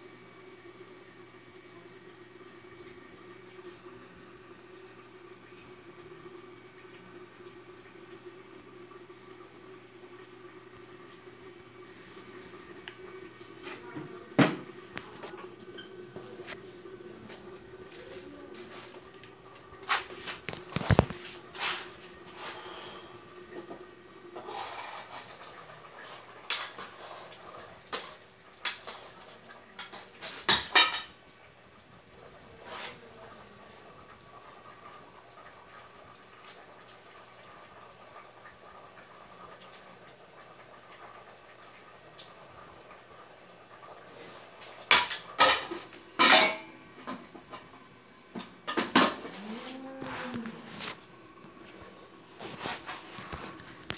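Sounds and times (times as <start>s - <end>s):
scrape: 21.2s - 23.1s, 24.4s - 25.4s, 26.0s - 27.5s, 32.6s - 33.0s, 52.4s - 53.6s.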